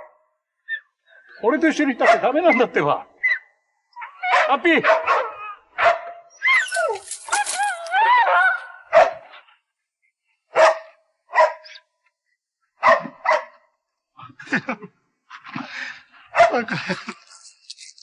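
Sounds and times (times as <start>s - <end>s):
dog barking: 2.0s - 2.3s, 4.0s - 6.3s, 8.3s - 9.3s, 10.5s - 11.8s, 12.8s - 13.7s, 16.3s - 16.6s.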